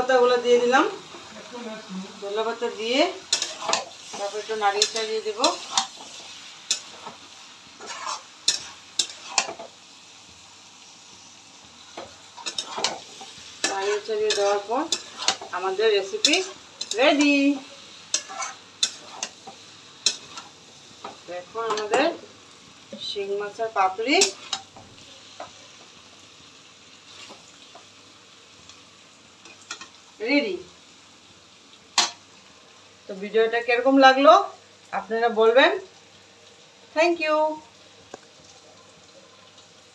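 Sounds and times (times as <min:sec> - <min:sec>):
faint sizzle: 0:00.0 - 0:39.9
metal spatula clicking on pan: 0:03.3 - 0:03.9, 0:04.7 - 0:07.1, 0:07.8 - 0:09.6, 0:12.0 - 0:15.5, 0:16.1 - 0:17.4, 0:18.1 - 0:22.0, 0:24.2 - 0:24.8
utensil scraping a steel pot: 0:07.8 - 0:09.6, 0:12.4 - 0:15.5, 0:18.1 - 0:19.4.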